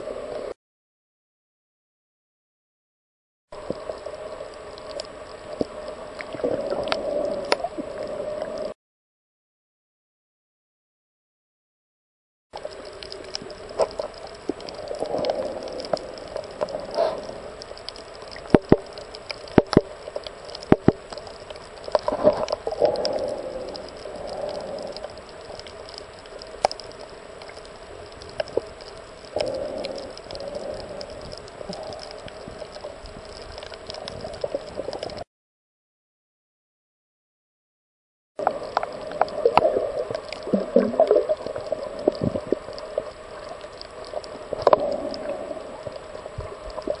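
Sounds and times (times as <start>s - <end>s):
sharp underwater clicks: 3.6s - 8.7s, 12.6s - 35.2s, 38.4s - 47.0s
muffled underwater sloshing: 12.6s - 35.2s, 38.4s - 47.0s.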